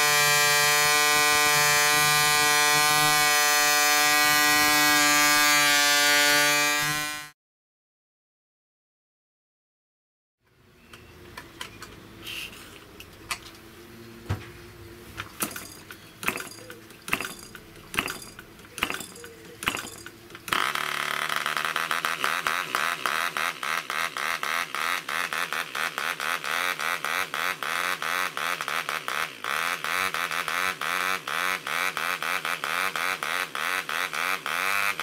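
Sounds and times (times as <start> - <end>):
model engine rattling buzz: 0.0 - 7.3, 15.2 - 35.0
propeller flicking pops and clicks: 15.1 - 27.4.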